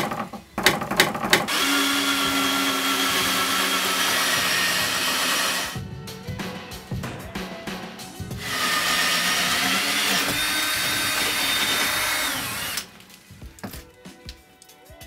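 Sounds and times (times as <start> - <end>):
cordless drill boring wood: 1.5 - 5.8, 8.4 - 12.9.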